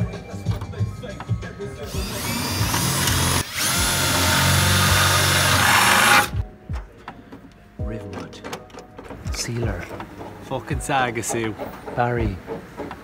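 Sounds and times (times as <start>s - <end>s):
drill boring through sheet metal: 1.8s - 6.4s.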